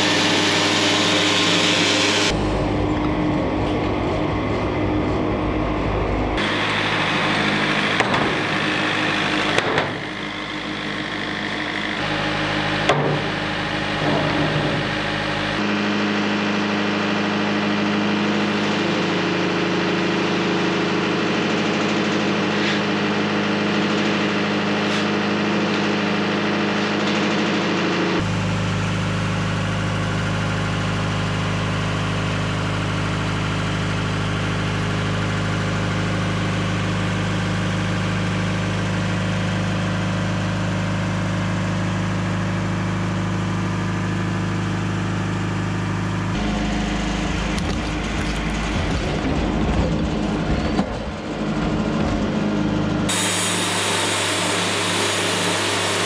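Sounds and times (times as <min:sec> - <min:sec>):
blade sawing log: 0:00.0 - 0:02.3, 0:06.4 - 0:15.6, 0:53.1 - 0:56.0
sawmill engine running: 0:00.0 - 0:56.0.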